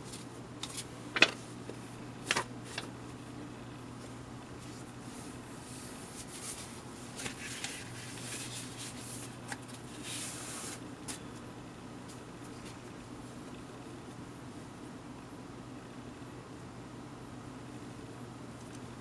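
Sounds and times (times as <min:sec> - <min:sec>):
faint steady hum: 0:00.0 - 0:19.0
wrapping rustling and crinkling: 0:04.6 - 0:11.2.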